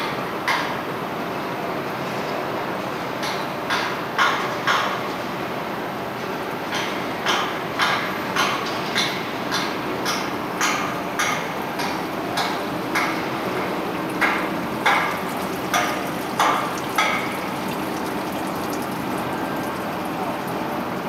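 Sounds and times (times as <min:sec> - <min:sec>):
water spilling into gutter: 0:11.1 - 0:21.0.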